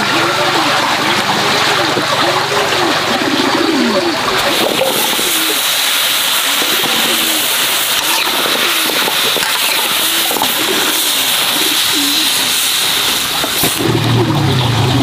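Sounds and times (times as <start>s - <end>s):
low cooing bird calls: 0.0s - 13.1s
meat sizzling in a wok: 4.5s - 14.0s.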